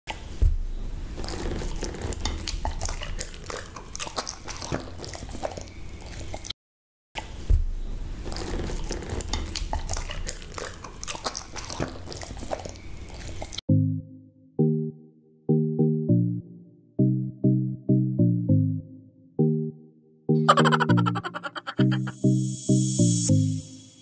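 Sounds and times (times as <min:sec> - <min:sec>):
dog chewing wet smacking: 0:01.4 - 0:06.5, 0:08.4 - 0:13.6.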